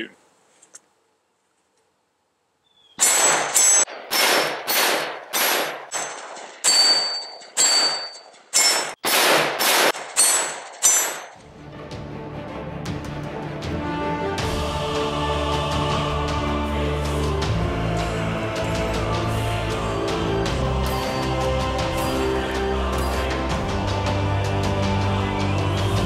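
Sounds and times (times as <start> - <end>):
pistol shots: 3.0 - 8.0, 8.6 - 11.3
ringing of hit steel targets: 3.0 - 11.4
background music: 11.4 - 26.0.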